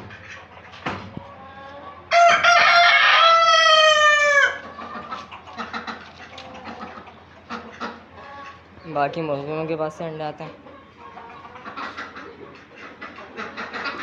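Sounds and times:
faint poultry calls: 0.0 - 8.9, 10.5 - 14.0
rooster crowing: 2.1 - 4.7.

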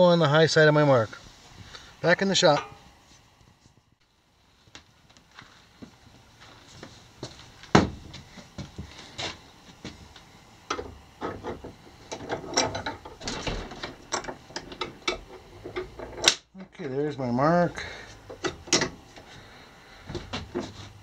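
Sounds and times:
metal rod clinking against vise: 2.5 - 2.9.

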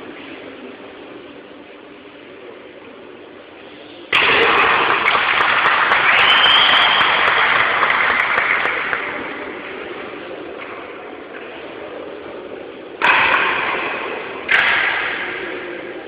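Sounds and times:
audience applauding and cheering: 4.7 - 9.3.

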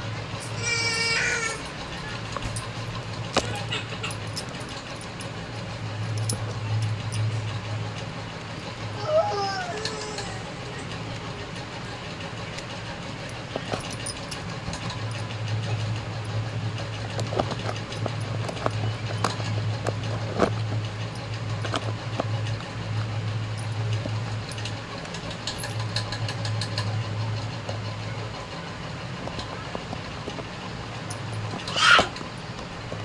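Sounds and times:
low motor hum: 0.0 - 33.0
glass bangles clicking: 0.4 - 7.3, 12.6 - 26.9, 31.0 - 32.4.

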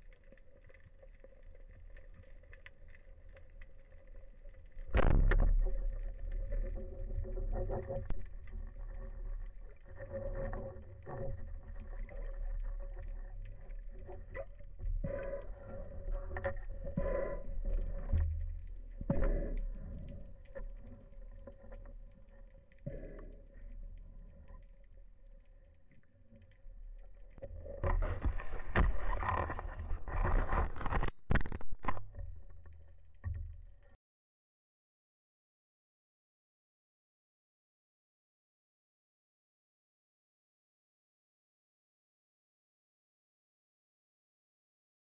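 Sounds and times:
underwater rumble: 0.0 - 34.0
clicks and knocks: 27.7 - 33.5.

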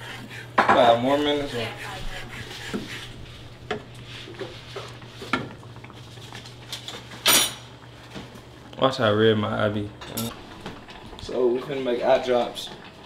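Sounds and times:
spatula stirring sauce in saucepan: 0.0 - 5.5.

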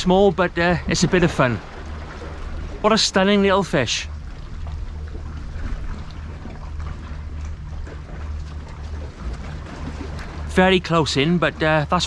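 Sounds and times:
sea washing against rocks: 0.0 - 3.9.

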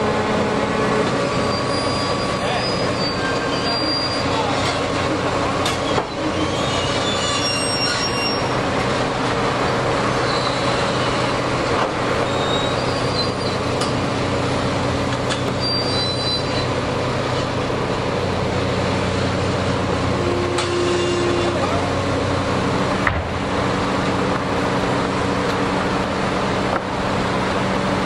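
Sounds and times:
construction machinery running: 0.0 - 28.0
high-pitched metallic squeals: 1.2 - 4.9, 5.6 - 8.6, 10.2 - 11.4, 12.2 - 13.7, 15.4 - 17.4, 20.2 - 21.8.

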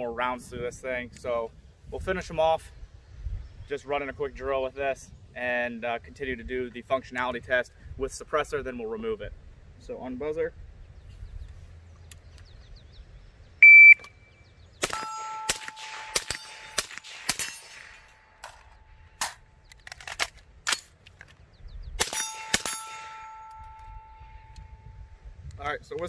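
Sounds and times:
shot timer beep: 13.6 - 14.1
suppressed rifle firing: 14.8 - 19.4
ringing tone: 22.2 - 25.2.

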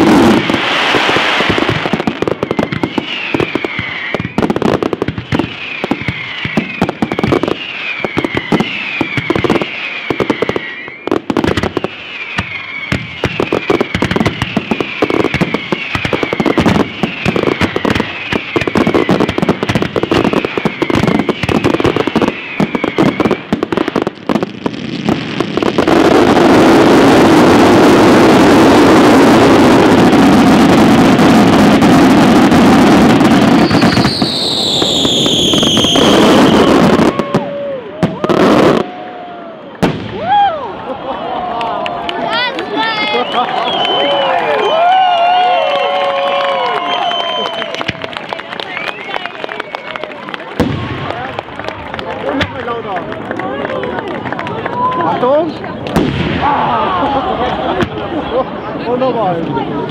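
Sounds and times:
warbling firework whistle: 0.0 - 23.6, 26.2 - 40.7, 43.0 - 50.2
fireworks bursting: 0.0 - 40.8, 42.2 - 59.9.

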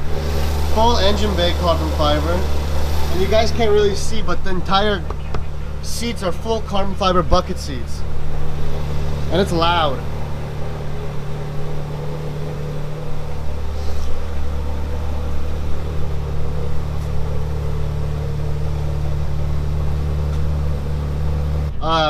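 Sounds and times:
loud car engine idling: 0.0 - 22.0.

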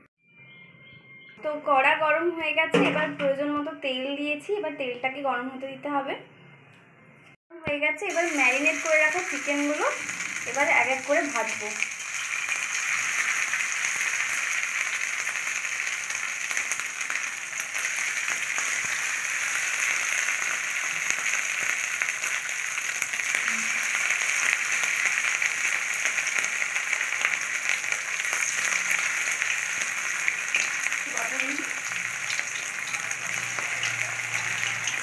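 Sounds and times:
chicken frying in oil: 8.1 - 35.0.

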